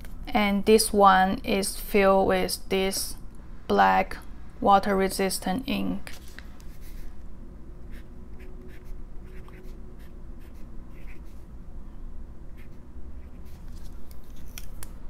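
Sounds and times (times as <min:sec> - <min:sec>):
fountain pen writing on paper: 0:08.7 - 0:11.4.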